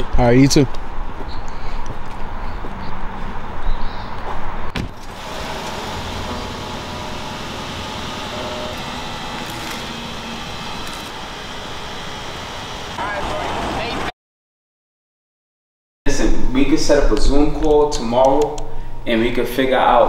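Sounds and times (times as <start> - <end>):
car door shutting: 4.7 - 11.4
car pulling away: 5.0 - 14.0.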